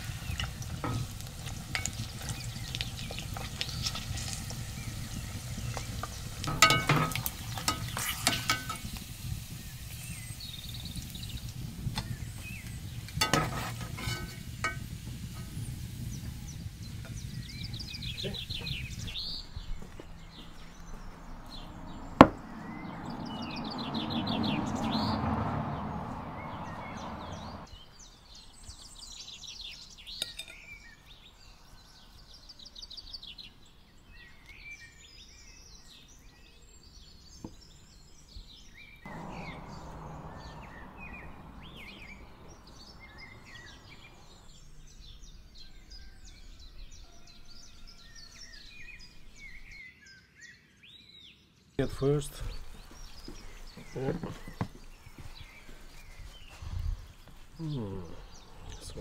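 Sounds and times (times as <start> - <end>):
small birds chirping: 0.0 - 59.0
sharp knock: 22.2 - 22.4
rushing noise: 39.1 - 44.9.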